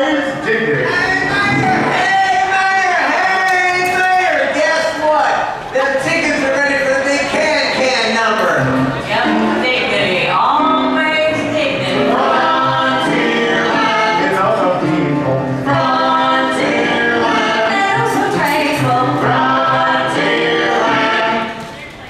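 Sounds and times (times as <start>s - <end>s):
live stage music: 0.0s - 22.0s
person singing: 11.9s - 21.6s.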